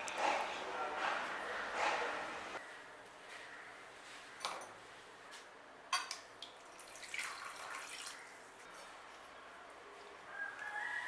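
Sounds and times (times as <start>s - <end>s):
water splashing into steel bowl: 6.4s - 8.2s.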